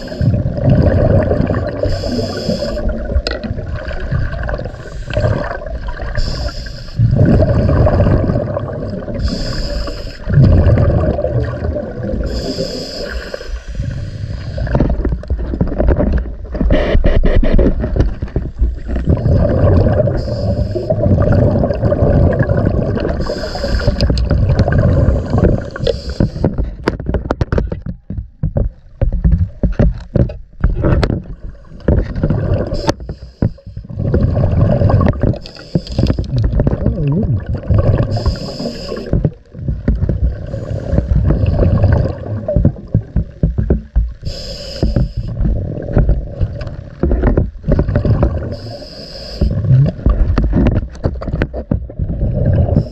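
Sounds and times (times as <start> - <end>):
bubbling exhalations: 0.0 - 16.1, 18.8 - 26.7, 30.8 - 33.1, 33.8 - 43.4, 44.2 - 50.7, 51.9 - 52.9
hissing regulator inhalation: 1.8 - 3.1, 6.1 - 7.8, 9.2 - 10.4, 12.2 - 14.7, 20.1 - 21.0, 23.1 - 24.2, 24.8 - 26.6, 35.4 - 36.4, 38.0 - 39.2, 44.2 - 45.4, 48.5 - 49.7.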